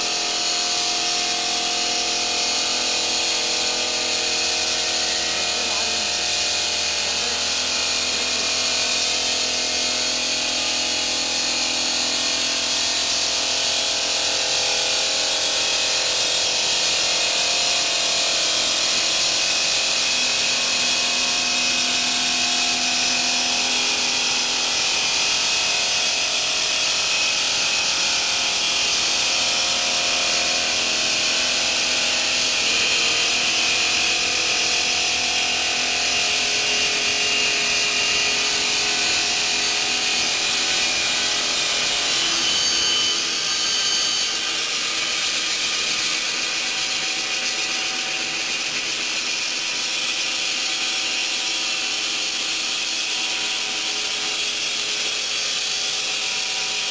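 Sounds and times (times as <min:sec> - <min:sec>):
saw disc grinding through stone: 0:00.2 - 0:11.2, 0:27.4 - 0:49.4.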